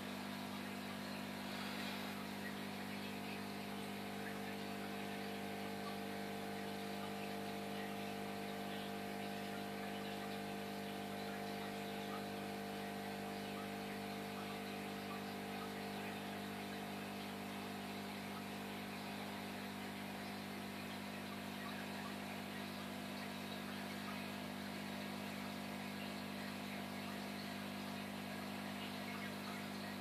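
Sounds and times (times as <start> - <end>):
aquarium air pump humming: 0.0 - 30.0
bubbles hissing: 0.3 - 21.1.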